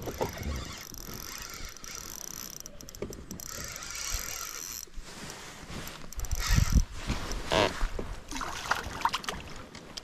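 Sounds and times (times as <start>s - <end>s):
fishing reel clicks: 0.0s - 4.9s, 6.1s - 6.8s
fishing reel whirring: 0.0s - 5.0s, 6.1s - 6.8s.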